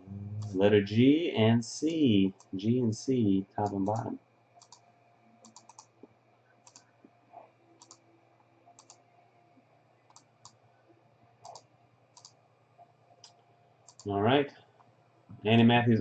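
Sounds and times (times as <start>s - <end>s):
faint low hum: 0.0s - 16.0s
computer mouse and keyboard clicks: 3.6s - 4.8s, 5.4s - 6.9s, 7.8s - 8.0s, 8.7s - 9.0s, 10.1s - 10.6s, 11.4s - 12.4s, 13.2s - 14.1s.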